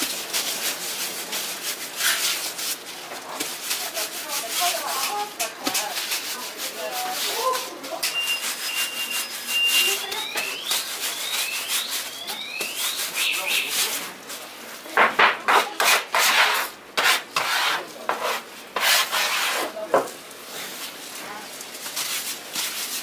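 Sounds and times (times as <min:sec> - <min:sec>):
dough rolling on wooden board: 0:00.0 - 0:13.7, 0:14.9 - 0:20.2.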